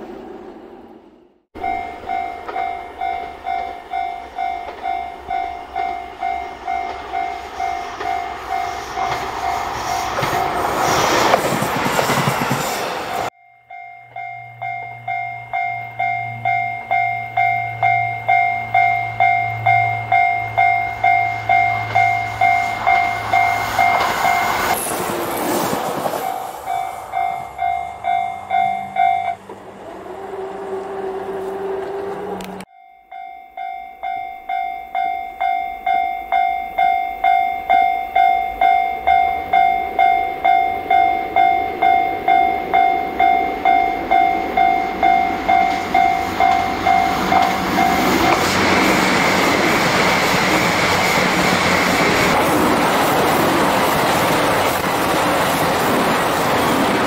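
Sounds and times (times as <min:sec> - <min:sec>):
diesel train passing: 0:00.0 - 0:32.7, 0:34.4 - 0:57.0
level crossing alarm bell ringing: 0:01.6 - 0:09.6, 0:13.3 - 0:24.8, 0:26.2 - 0:29.5, 0:32.6 - 0:48.4
low engine drone: 0:26.6 - 0:32.7.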